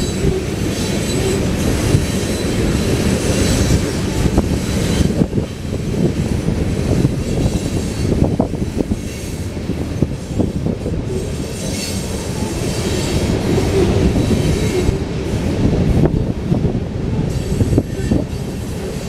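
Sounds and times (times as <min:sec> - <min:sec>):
steel wheels rumbling on rail: 0:00.0 - 0:19.0.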